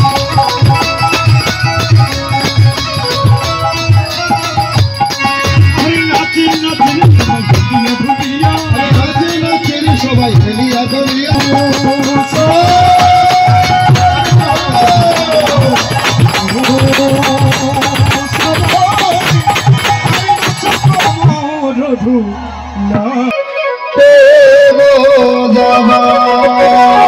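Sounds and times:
jingling hand cymbals: 0:00.0 - 0:21.6
khol drum beating: 0:00.0 - 0:22.0.

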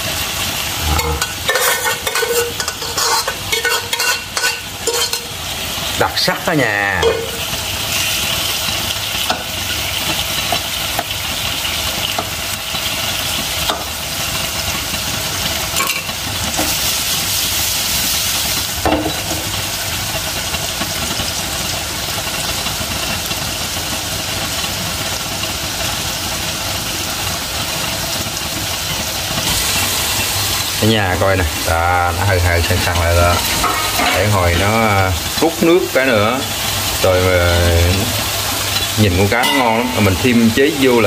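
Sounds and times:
fish sizzling in hot oil: 0:00.0 - 0:41.0
spatula scraping a pan: 0:00.7 - 0:05.4, 0:33.1 - 0:34.8.

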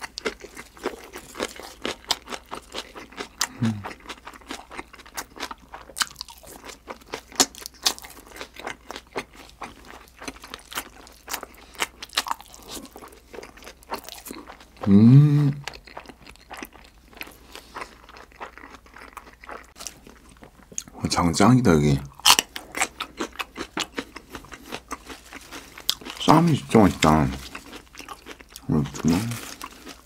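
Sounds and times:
person humming briefly: 0:03.5 - 0:03.9, 0:14.8 - 0:15.6.

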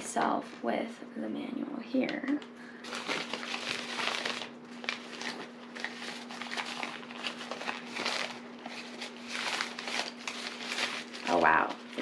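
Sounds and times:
steady low hum: 0:00.0 - 0:12.0
fabric bag rustling and crinkling: 0:02.8 - 0:12.0.

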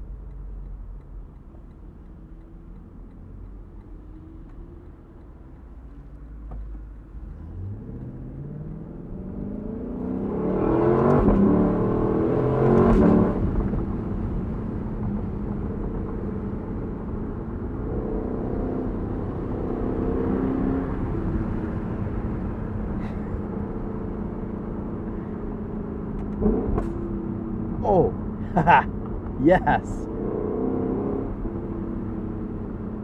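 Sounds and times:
car engine accelerating hard: 0:07.2 - 0:14.6, 0:29.6 - 0:33.0.

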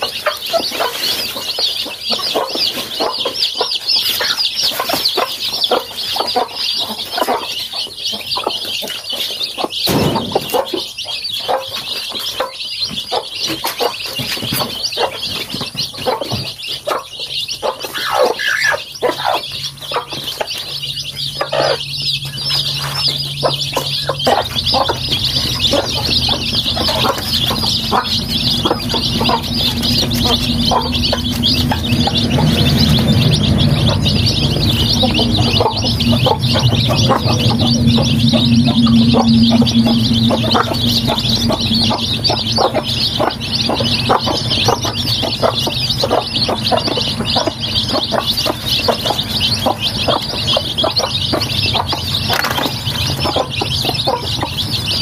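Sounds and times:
chicks peeping: 0:00.0 - 0:55.0
low steady hum: 0:19.5 - 0:54.9.

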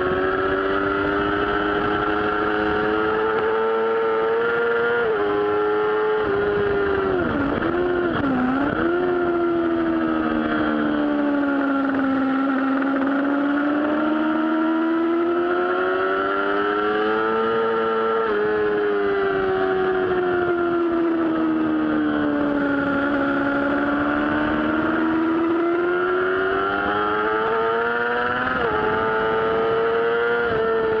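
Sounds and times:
motorcycle engine revving: 0:00.0 - 0:31.0.

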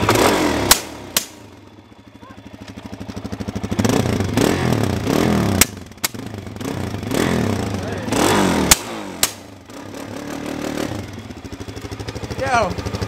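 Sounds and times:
exhaust backfire pops: 0:00.0 - 0:01.4, 0:05.5 - 0:06.3, 0:08.6 - 0:09.5
motorcycle engine revving: 0:00.0 - 0:13.0.

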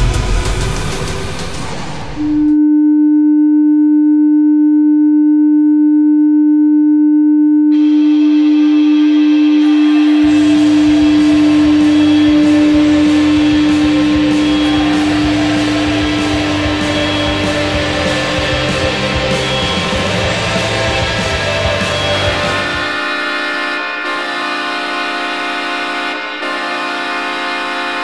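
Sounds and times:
goal horn blast: 0:07.6 - 0:28.0
rock song with drums and bass: 0:10.3 - 0:23.0.

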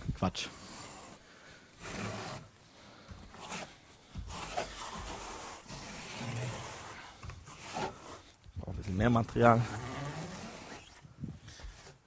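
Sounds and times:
steel trowels scraping mortar: 0:00.4 - 0:01.2, 0:01.8 - 0:02.5, 0:03.3 - 0:08.4.

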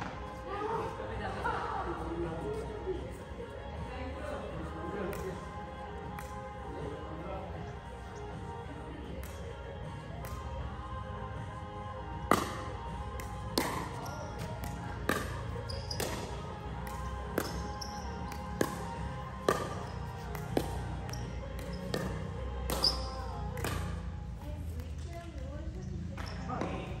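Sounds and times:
background music: 0:00.0 - 0:27.0
ball hitting hard ground: 0:12.2 - 0:24.0.

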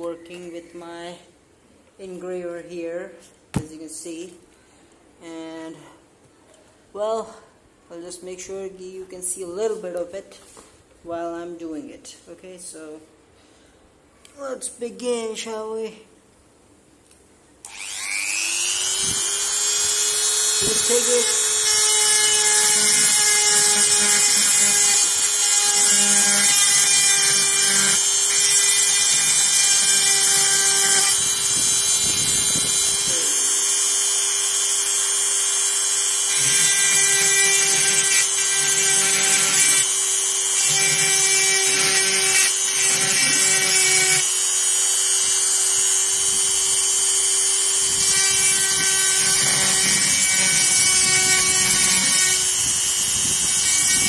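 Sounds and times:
bit grinding metal: 0:17.7 - 0:54.0
rotary engraver motor whine: 0:17.7 - 0:54.0.

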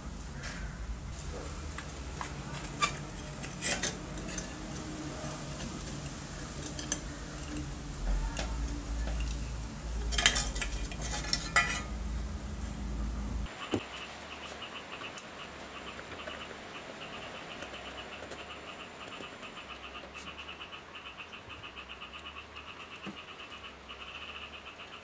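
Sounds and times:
metal parts clinking and scraping: 0:02.2 - 0:12.9.

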